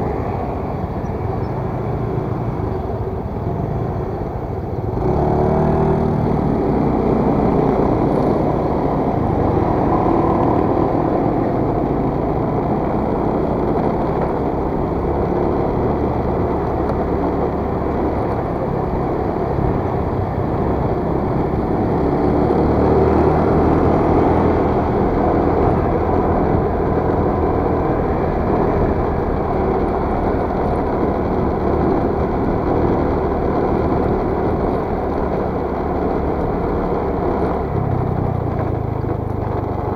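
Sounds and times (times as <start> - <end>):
wind and road noise: 0.0 - 39.9
scooter engine running: 0.7 - 39.9.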